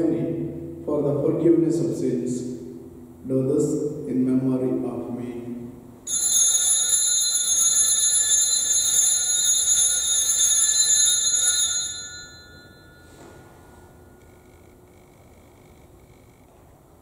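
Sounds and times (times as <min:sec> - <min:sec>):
altar bells ringing: 0:06.0 - 0:14.2.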